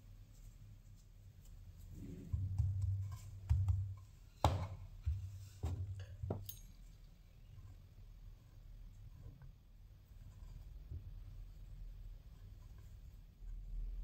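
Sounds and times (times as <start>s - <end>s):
dough thudding on wooden board: 2.1s - 6.4s.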